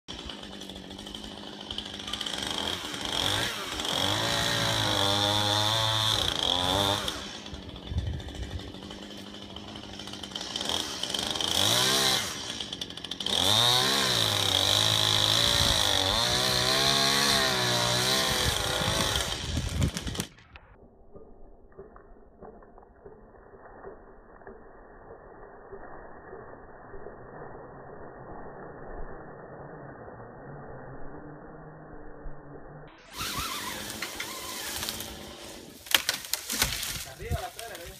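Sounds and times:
chainsaw revving: 0.1 - 20.5, 33.0 - 37.9.

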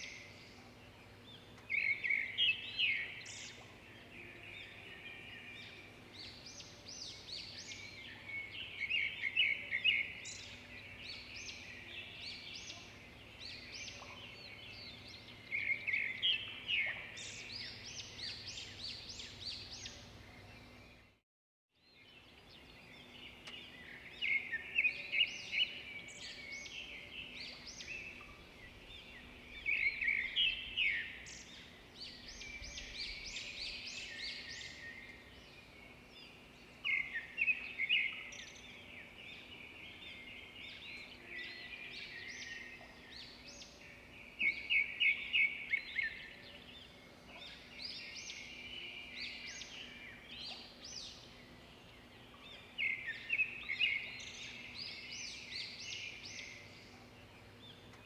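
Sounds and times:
small birds chirping: 21.8 - 58.0.

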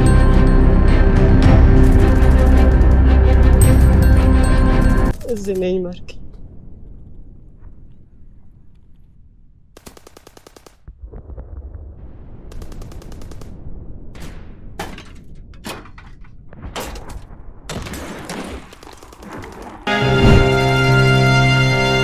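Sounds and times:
low rumble: 10.8 - 17.7, 19.8 - 21.9.

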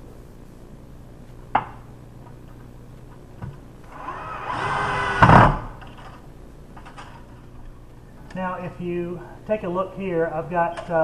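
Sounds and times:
cordless drill driving screw: 3.9 - 5.4.

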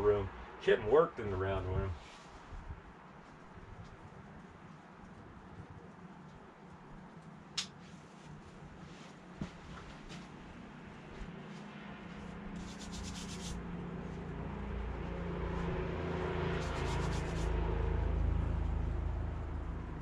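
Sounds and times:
scratchy rubbing sounds: 12.2 - 14.2, 16.5 - 17.6.

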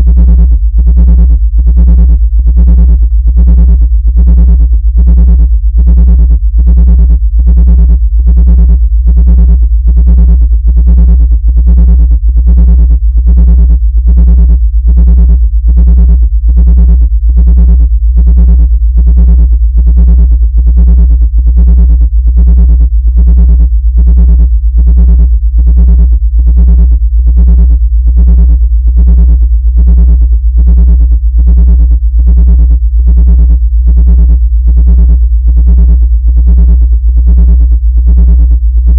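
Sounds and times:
pulsing electronic tone: 0.0 - 32.7
deep bass hum: 0.0 - 38.9.

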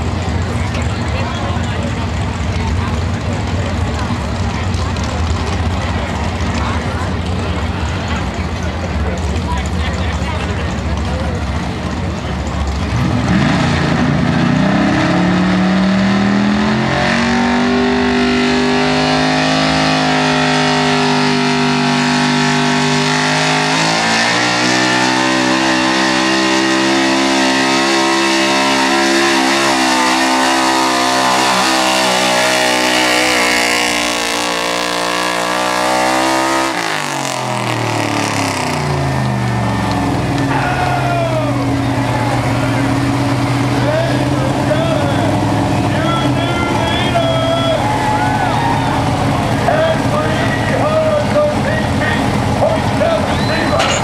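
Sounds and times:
truck engine revving under load: 0.0 - 54.0.

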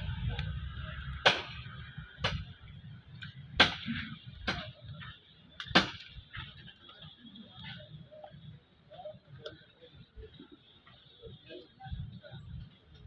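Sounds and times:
low steady rumble: 0.0 - 6.8.

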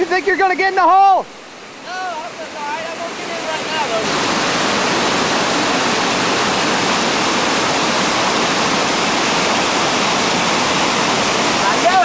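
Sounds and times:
whitewater rapid rushing: 0.0 - 12.0.

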